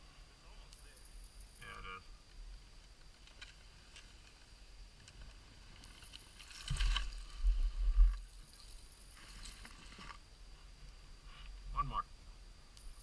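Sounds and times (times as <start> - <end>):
faint outdoor background: 0.0 - 13.0
rustling: 2.4 - 11.6.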